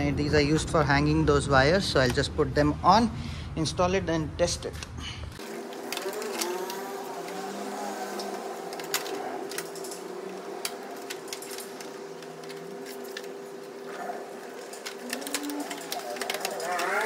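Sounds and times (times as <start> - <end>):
mechanical hum: 0.0 - 17.0
plastic parts clicking: 5.4 - 17.0.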